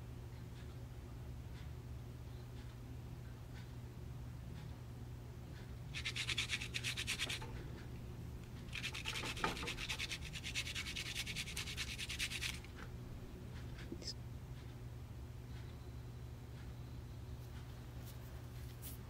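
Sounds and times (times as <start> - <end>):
garlic rasping on metal grater: 6.0 - 7.6, 8.7 - 12.7.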